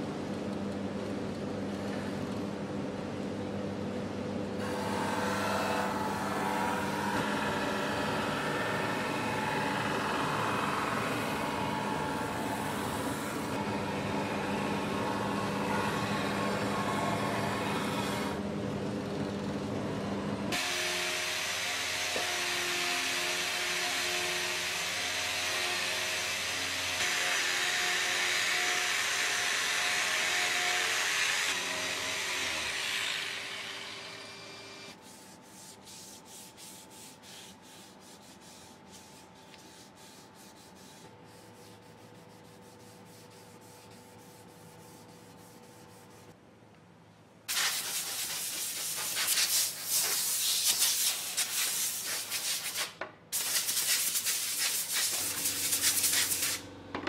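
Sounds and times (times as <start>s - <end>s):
electric sander on wood: 4.6s - 18.4s, 20.5s - 34.9s
hand sanding strokes: 35.0s - 46.4s, 47.5s - 56.6s.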